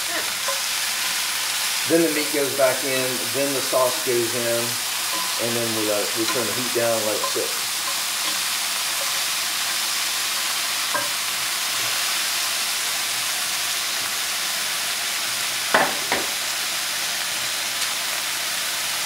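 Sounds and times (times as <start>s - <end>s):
meat sizzling in a skillet: 0.0s - 19.0s
wooden spoon stirring onions: 0.2s - 12.2s.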